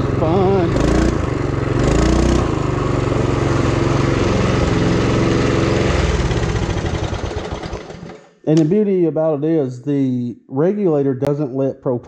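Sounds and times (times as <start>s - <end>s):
mini bike engine running: 0.0s - 8.3s.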